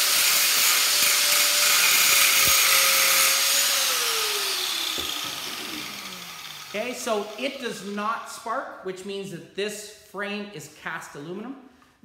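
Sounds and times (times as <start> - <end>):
angle grinder whining: 0.0 - 8.0.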